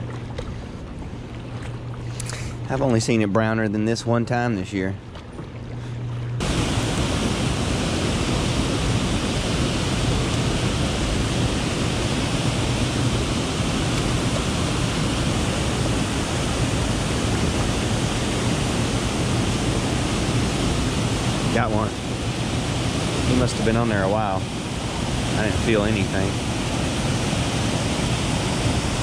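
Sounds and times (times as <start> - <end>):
small waterfall rushing: 6.4 - 29.0.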